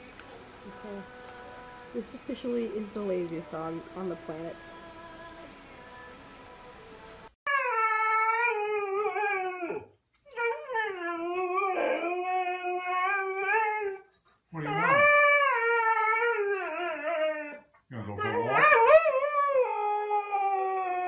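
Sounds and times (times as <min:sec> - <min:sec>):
dog howling: 0:07.5 - 0:21.0.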